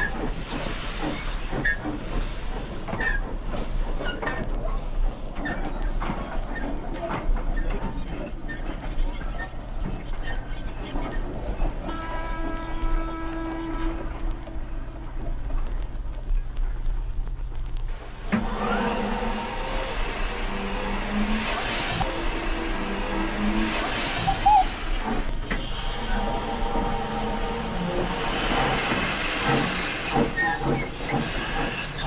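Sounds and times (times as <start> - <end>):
steam hissing: 0.0 - 6.7, 17.9 - 32.0
model locomotive running: 17.9 - 32.0.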